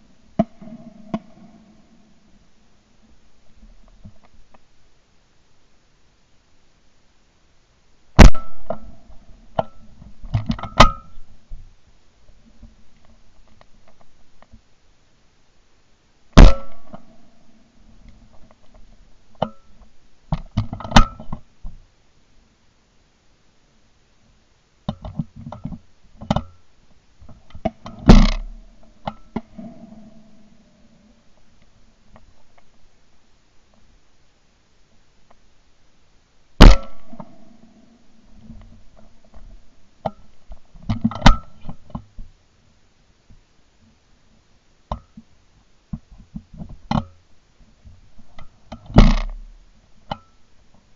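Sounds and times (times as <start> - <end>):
shotgun shot: 8.2 - 8.7, 16.4 - 16.8, 36.6 - 37.1.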